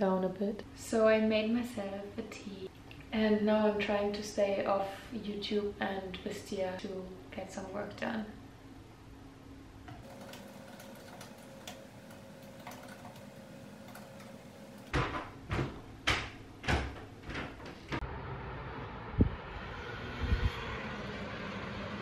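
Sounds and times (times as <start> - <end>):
distant traffic hum: 11.2 - 22.0
loud knocks: 14.9 - 18.0.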